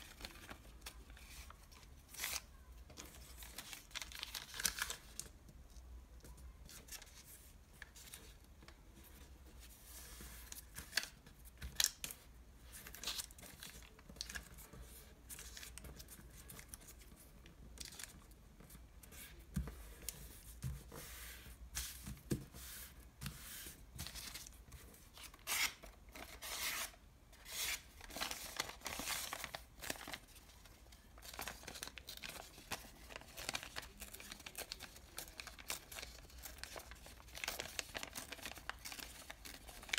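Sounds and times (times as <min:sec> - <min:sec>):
paper bag crinkling and crackling: 0:28.0 - 0:30.5.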